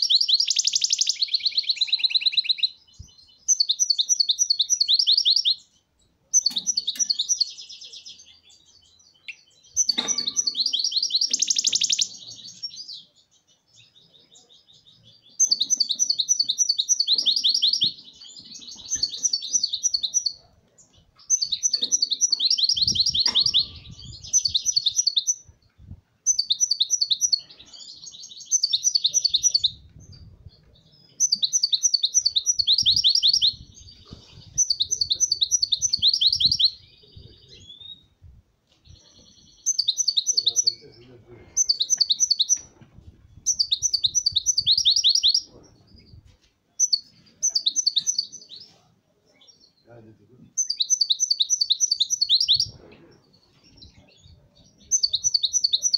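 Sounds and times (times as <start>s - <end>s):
goldfinch twittering: 9.3s - 12.4s, 21.3s - 25.4s, 43.5s - 45.5s.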